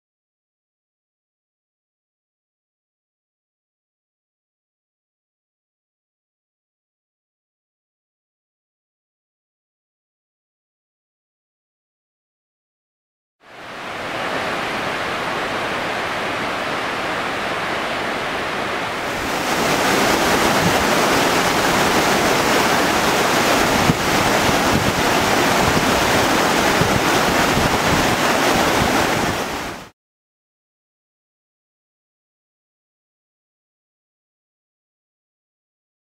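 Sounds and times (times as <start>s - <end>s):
waterfall rushing: 13.5s - 29.9s
rocky creek flowing: 13.8s - 29.8s.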